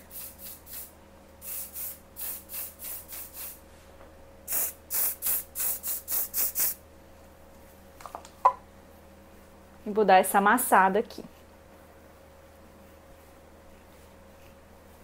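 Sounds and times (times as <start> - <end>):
aerosol spray puffs: 0.0 - 3.6, 4.5 - 6.8.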